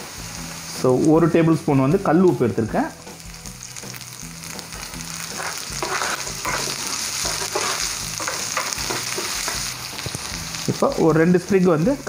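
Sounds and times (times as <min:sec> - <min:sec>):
onion and spices sizzling in oil: 0:00.0 - 0:12.0
spatula scraping pan: 0:05.2 - 0:10.3.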